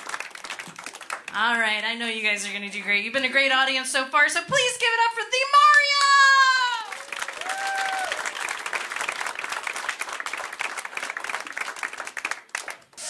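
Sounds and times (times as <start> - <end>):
audience applauding: 0.0 - 1.4, 6.0 - 13.0.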